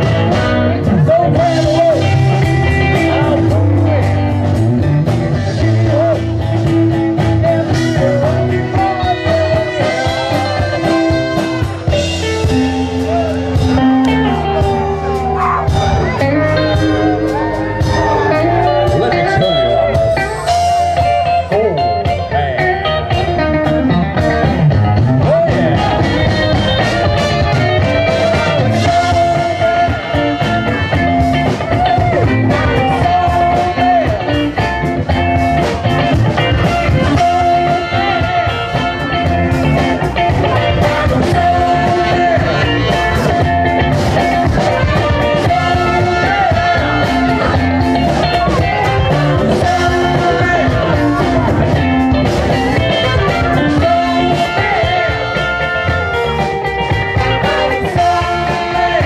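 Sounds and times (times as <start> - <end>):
electric guitar: 0.0 - 59.0
person singing: 0.0 - 59.0
steady drum beat: 0.0 - 59.0
horns playing: 8.7 - 20.7, 25.3 - 34.1, 36.6 - 39.6, 52.5 - 59.0.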